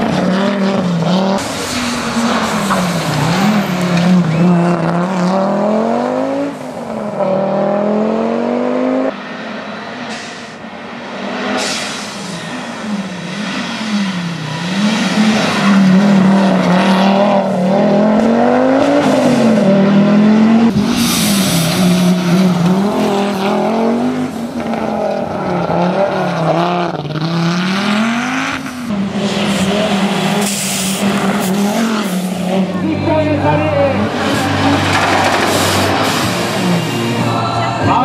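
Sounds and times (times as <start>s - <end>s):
rally car engine revving: 0.0s - 38.0s.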